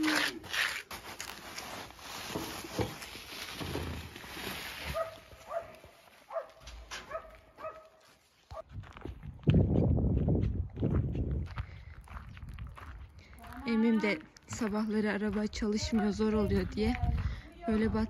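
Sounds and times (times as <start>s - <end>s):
rustling: 0.1s - 6.9s.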